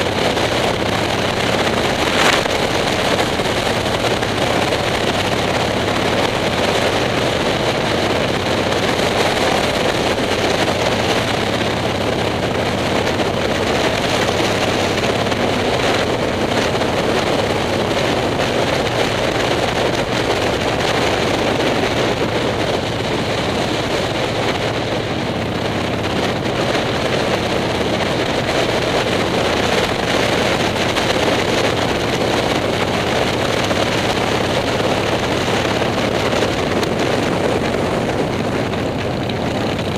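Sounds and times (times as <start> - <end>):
wind rushing: 0.0 - 13.4
motorcycle engine running: 0.0 - 39.9.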